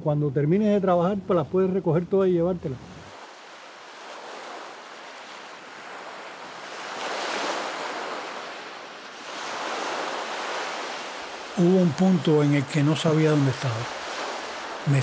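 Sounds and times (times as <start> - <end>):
ocean waves rushing: 2.3 - 15.0.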